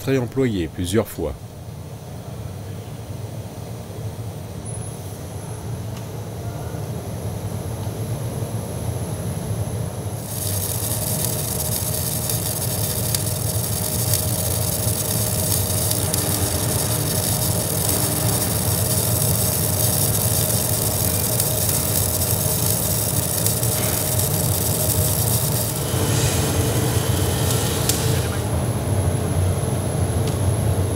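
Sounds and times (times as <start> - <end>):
low machine hum: 0.0 - 30.9
welding arc crackling hiss: 10.1 - 30.5.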